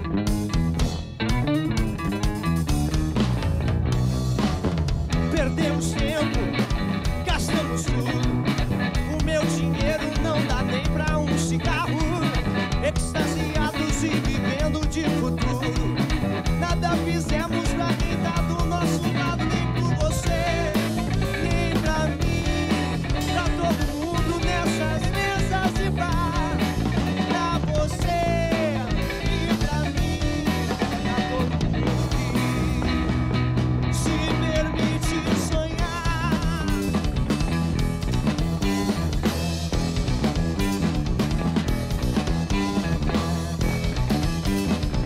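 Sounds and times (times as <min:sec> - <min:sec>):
drum kit: 0:00.0 - 0:45.0
electric bass: 0:00.0 - 0:45.0
electric guitar: 0:00.0 - 0:45.0
rock band playing live: 0:00.0 - 0:45.0
man singing: 0:05.2 - 0:32.4, 0:33.8 - 0:37.1.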